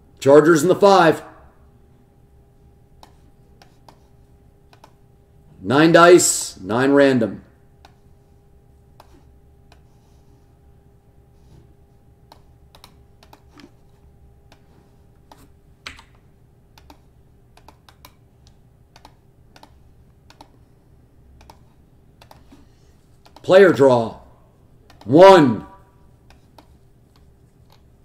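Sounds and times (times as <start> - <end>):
low steady hum: 0.0 - 28.0
keyboard and mouse clicking: 4.7 - 5.0, 12.3 - 13.7, 16.8 - 20.7, 21.4 - 22.6, 23.2 - 23.4, 24.9 - 25.1, 26.2 - 27.9.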